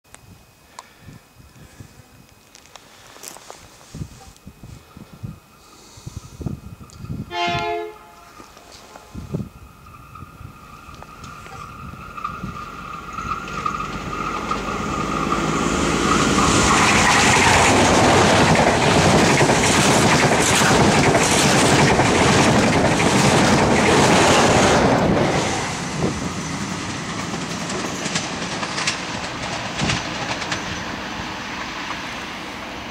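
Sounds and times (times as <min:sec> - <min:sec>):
train rushing past: 0:05.9 - 0:32.9
train horn: 0:07.3 - 0:09.0
wheels clicking over rail joints: 0:10.8 - 0:25.3, 0:26.0 - 0:31.0.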